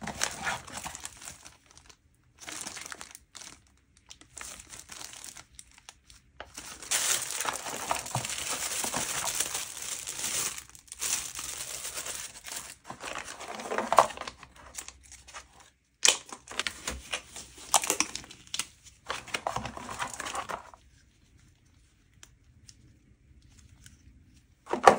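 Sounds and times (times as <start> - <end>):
shrink wrap tearing: 0.0 - 15.4
plastic packaging crinkling: 0.0 - 20.9.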